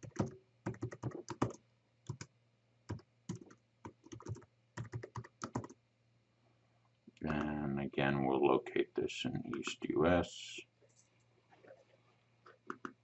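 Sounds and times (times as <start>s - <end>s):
keyboard typing: 0.0s - 2.3s, 2.9s - 5.8s, 12.4s - 13.0s.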